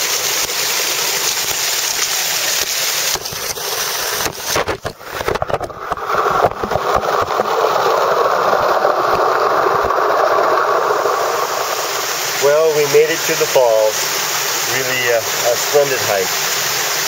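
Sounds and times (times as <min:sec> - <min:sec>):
small waterfall rushing: 0:00.0 - 0:17.0
irregular knocks and crackles: 0:03.1 - 0:07.8.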